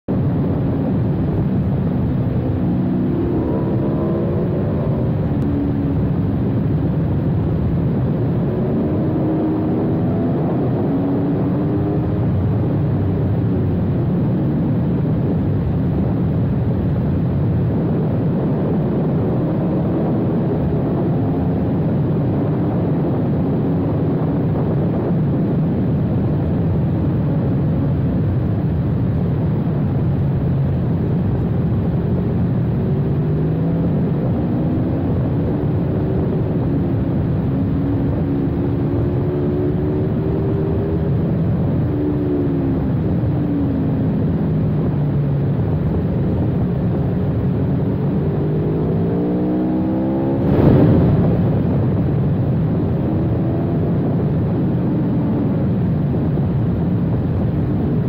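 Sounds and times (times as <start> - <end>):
wind rushing: 45.2 - 54.8.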